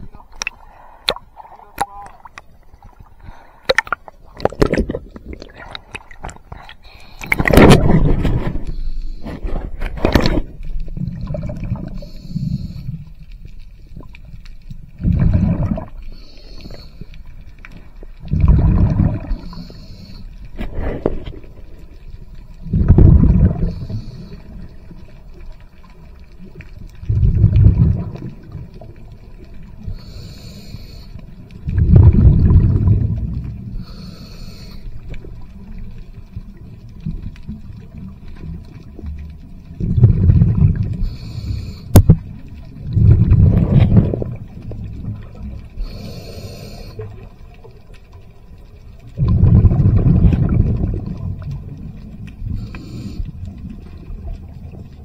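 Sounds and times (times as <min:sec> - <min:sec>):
exhaled bubbles underwater: 0:00.0 - 0:13.1, 0:13.8 - 0:30.3, 0:31.4 - 0:55.0
regulator inhalation hiss: 0:16.1 - 0:17.1, 0:19.4 - 0:20.3, 0:30.0 - 0:31.3, 0:33.8 - 0:35.0, 0:41.0 - 0:41.9, 0:45.8 - 0:47.0, 0:52.5 - 0:53.3.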